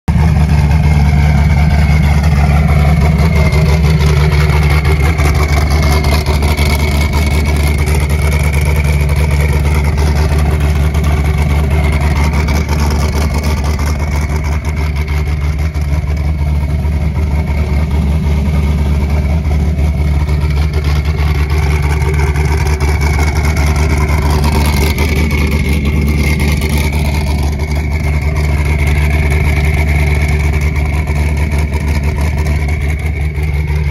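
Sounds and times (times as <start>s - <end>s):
engine idling deep rumble: 0.0s - 33.9s.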